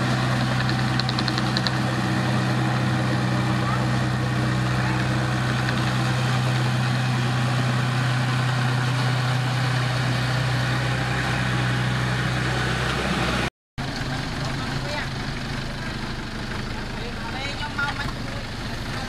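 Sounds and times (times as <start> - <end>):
bulldozer diesel engine running: 0.0 - 19.0.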